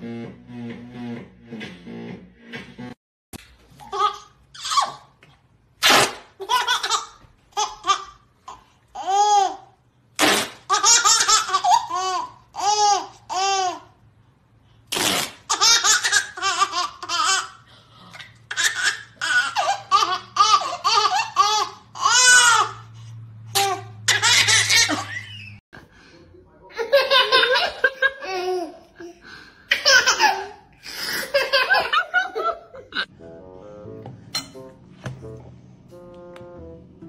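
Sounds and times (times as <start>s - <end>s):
baby laughing: 3.8s - 5.1s, 6.4s - 9.7s, 10.7s - 13.9s, 15.5s - 17.6s, 18.5s - 22.8s, 23.5s - 25.6s, 26.8s - 33.1s
duct tape ripping off roll: 5.8s - 6.4s, 10.2s - 10.7s, 14.9s - 15.6s.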